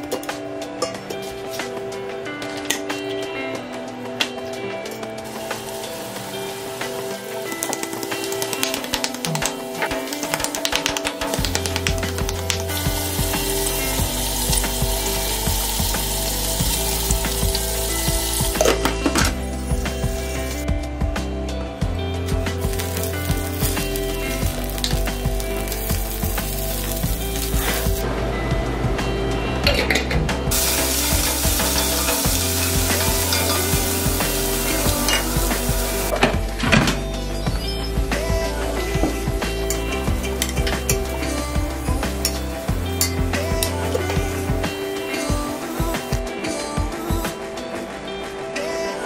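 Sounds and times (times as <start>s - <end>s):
meat sizzling in oil: 5.3s - 8.9s, 11.5s - 18.8s, 22.6s - 28.0s, 30.5s - 36.1s.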